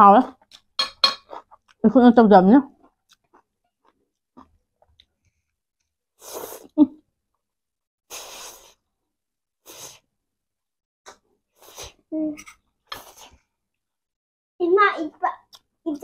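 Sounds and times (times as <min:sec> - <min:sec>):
slurping noodles: 0:08.1 - 0:08.9.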